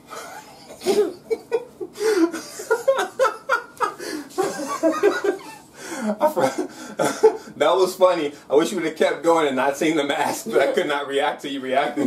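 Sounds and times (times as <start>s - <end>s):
person laughing heartily: 0.0s - 7.6s.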